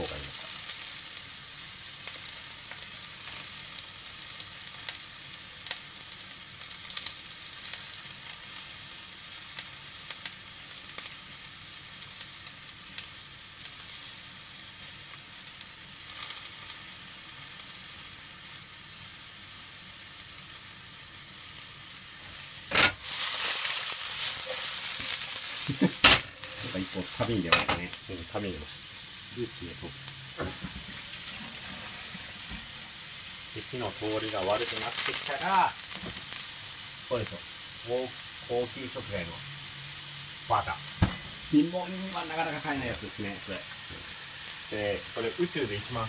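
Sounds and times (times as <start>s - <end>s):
vegetables sizzling in frying pan: 0.0s - 46.0s
pan being tossed: 22.7s - 23.1s.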